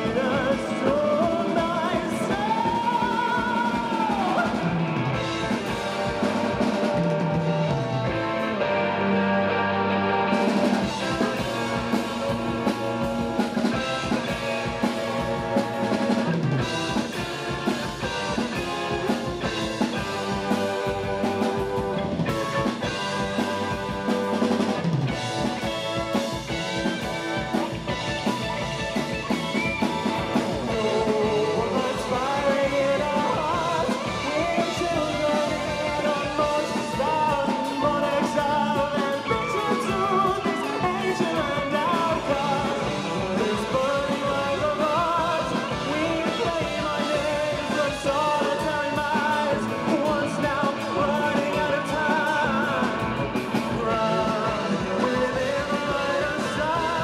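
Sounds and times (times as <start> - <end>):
man singing: 0.0 - 8.0, 30.0 - 57.0
rock band playing: 0.0 - 57.0.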